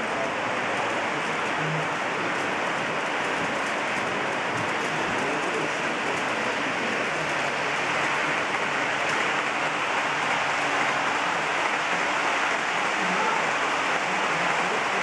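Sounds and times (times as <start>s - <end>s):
model trains rolling on track: 0.0s - 15.0s.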